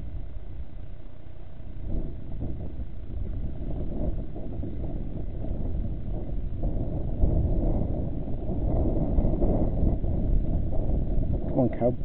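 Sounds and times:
wind buffeting microphone: 0.0s - 1.0s, 1.6s - 12.0s.

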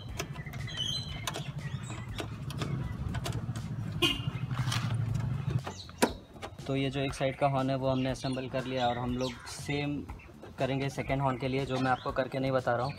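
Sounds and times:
metal clicks and knocks of spanner: 0.0s - 3.6s.

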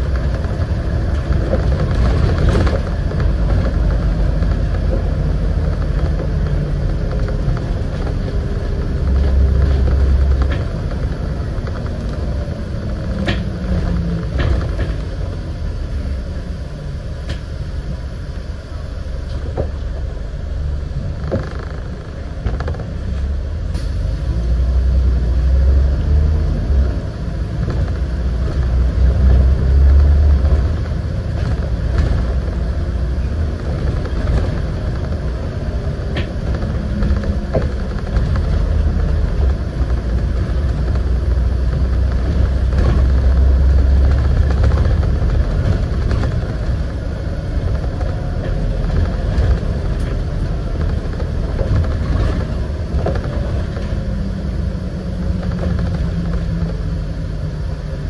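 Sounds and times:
bus body rattles: 0.0s - 58.0s
bus engine drone: 0.0s - 58.0s
road noise: 0.0s - 58.0s.

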